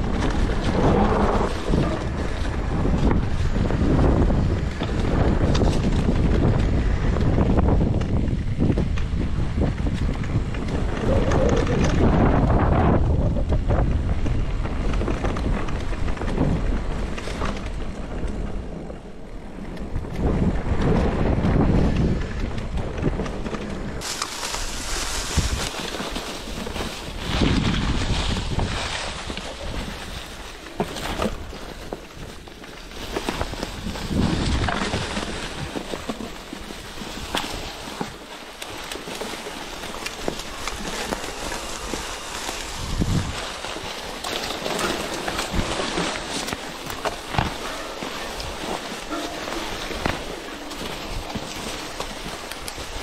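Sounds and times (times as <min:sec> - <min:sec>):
rustling: 0:00.0 - 0:18.9, 0:19.6 - 0:53.0
wind buffeting microphone: 0:00.0 - 0:53.0
bike clicks and knocks: 0:13.4 - 0:53.0.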